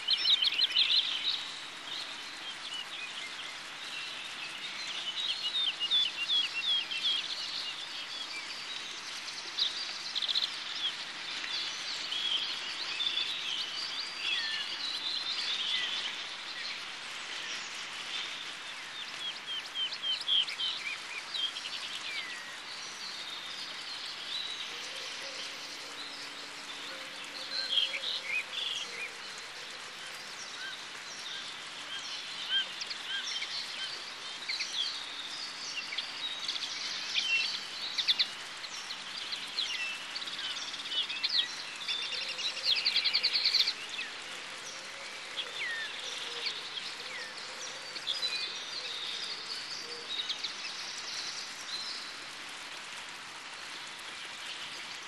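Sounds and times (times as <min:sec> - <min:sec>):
wild birds singing: 0:00.0 - 0:55.0.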